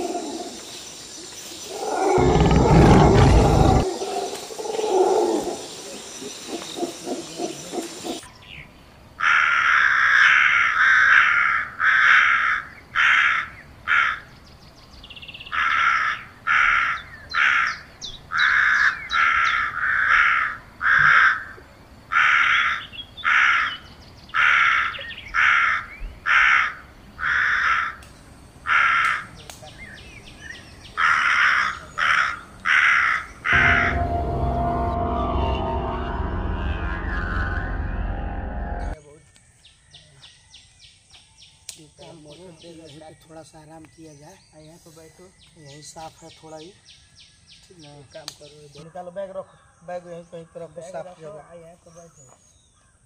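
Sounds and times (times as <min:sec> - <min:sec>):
crows cawing: 0:09.2 - 0:14.3, 0:15.5 - 0:28.0, 0:28.6 - 0:29.3, 0:31.0 - 0:34.0
music: 0:33.6 - 0:39.0.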